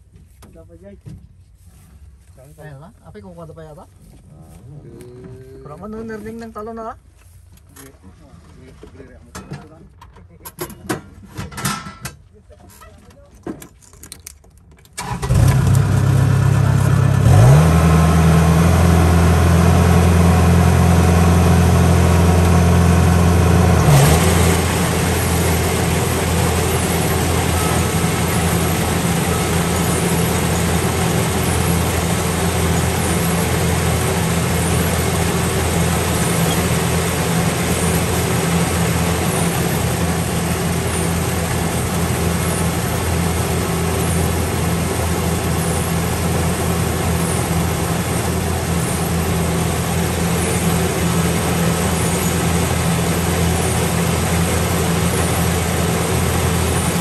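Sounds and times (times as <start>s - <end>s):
harvester engine running: 15.0s - 57.0s.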